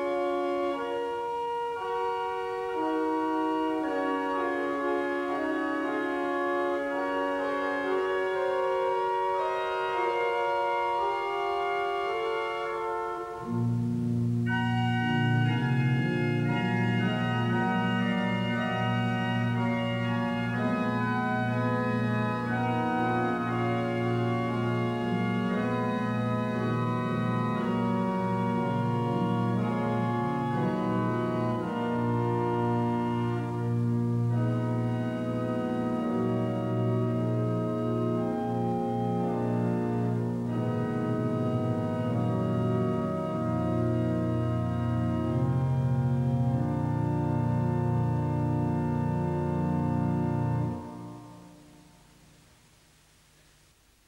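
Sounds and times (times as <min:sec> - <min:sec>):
organ chords: 0:00.0 - 0:52.8.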